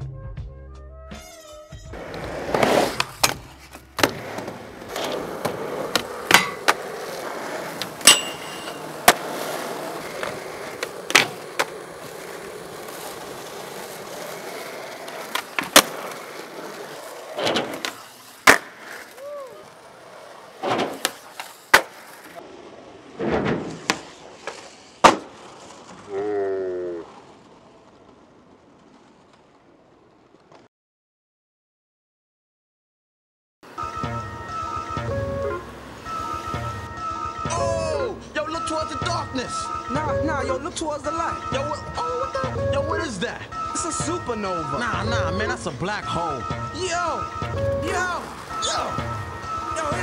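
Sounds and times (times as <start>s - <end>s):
skateboard rolling: 1.2s - 30.7s, 33.7s - 50.0s
skateboard clacks on ground: 2.0s - 22.4s.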